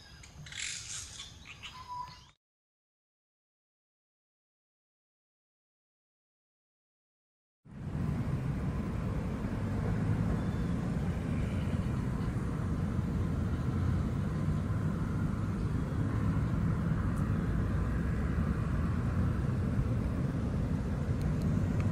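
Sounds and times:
low outdoor rumble: 0:07.6 - 0:21.9.

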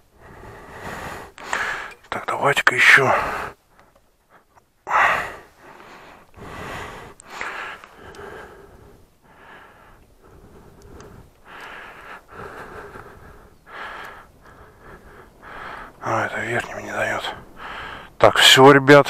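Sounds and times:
man breathing and sniffing: 0:00.0 - 0:02.1, 0:03.1 - 0:16.3, 0:17.3 - 0:18.2
faint clicks: 0:07.1 - 0:08.3, 0:09.9 - 0:12.1, 0:13.9 - 0:14.6.

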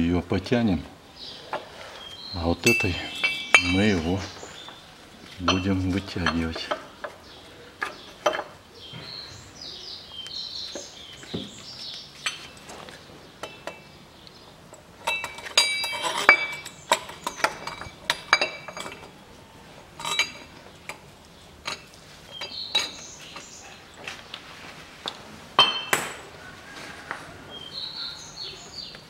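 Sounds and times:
steel parts clinking: 0:02.6 - 0:04.8, 0:05.4 - 0:07.1, 0:14.7 - 0:19.2, 0:20.0 - 0:21.0, 0:21.6 - 0:23.6.

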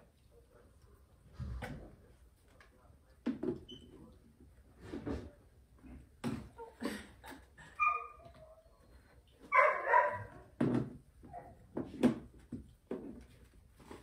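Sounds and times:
puppy whining cry: 0:07.8 - 0:08.7.

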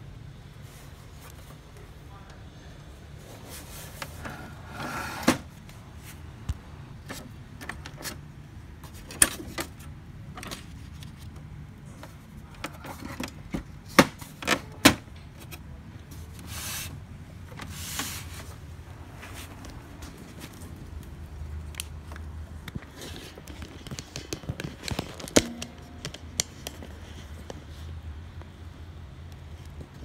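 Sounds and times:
plastic parts clicking and knocking: 0:21.7 - 0:27.5.

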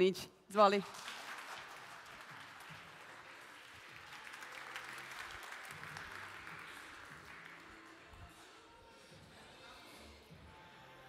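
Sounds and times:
audience applauding: 0:00.8 - 0:08.5.

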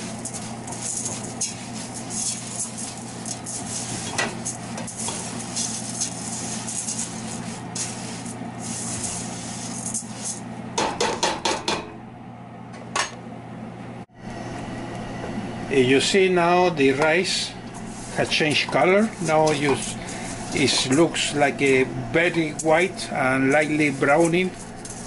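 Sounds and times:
spatula stirring dry rice in pot: 0:00.0 - 0:10.4, 0:17.7 - 0:25.0
steady low hum: 0:00.0 - 0:25.0.

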